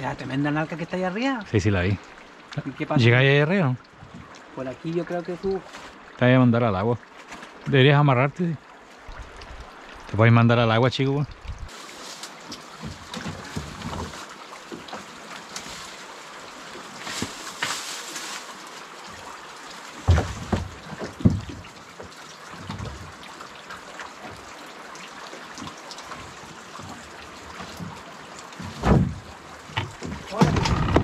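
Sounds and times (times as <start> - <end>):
river water lapping: 11.3 - 31.0
dull knocks: 20.0 - 21.7, 28.6 - 31.0.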